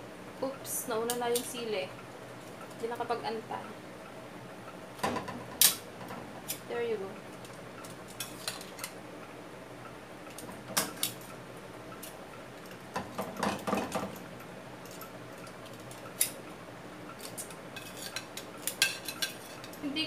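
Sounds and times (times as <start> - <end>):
low background hum: 0.0 - 20.0
tongs clinking against pot: 17.1 - 19.8.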